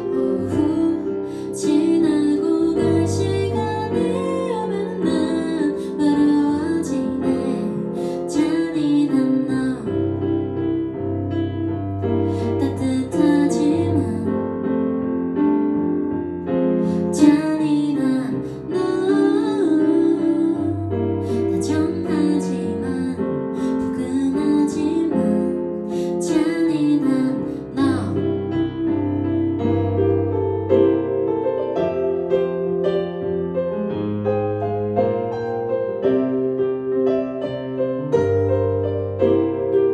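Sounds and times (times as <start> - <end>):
woman singing: 0.0 - 10.4, 12.3 - 14.7, 16.8 - 28.7
digital piano: 0.0 - 39.9.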